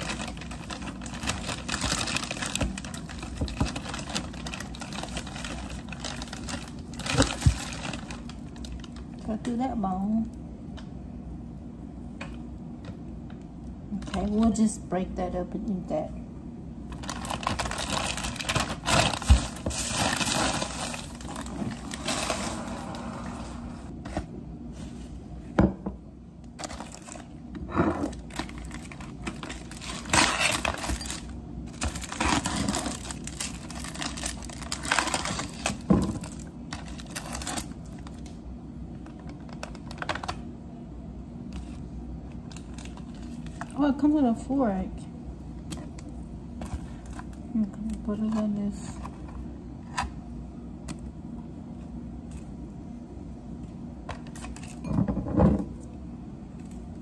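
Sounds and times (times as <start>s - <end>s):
plastic packaging crinkling: 0.0s - 9.4s, 16.9s - 23.0s, 26.6s - 27.4s, 28.1s - 38.4s, 39.0s - 40.4s, 41.5s - 43.8s.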